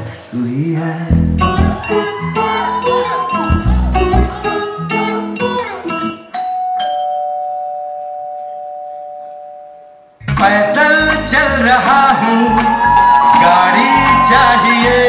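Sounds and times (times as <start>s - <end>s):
song music: 0.9s - 6.6s, 9.2s - 15.0s
two-note doorbell chime: 6.3s - 10.1s.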